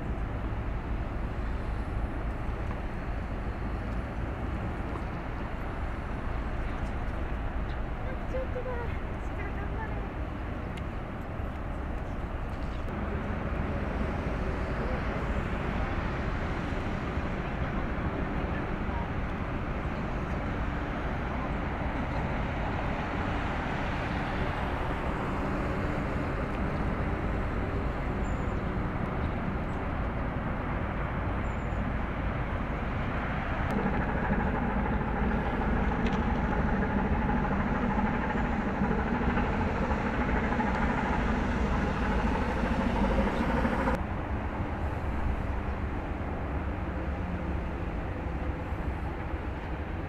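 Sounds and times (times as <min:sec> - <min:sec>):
low engine rumble and hiss: 0:00.0 - 0:50.0
steady hum: 0:22.8 - 0:50.0.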